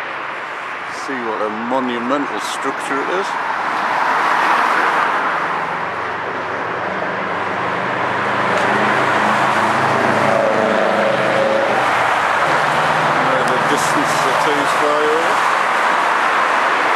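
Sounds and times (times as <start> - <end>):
road traffic rushing: 0.0 - 16.9
vehicle passing close by: 3.4 - 16.9.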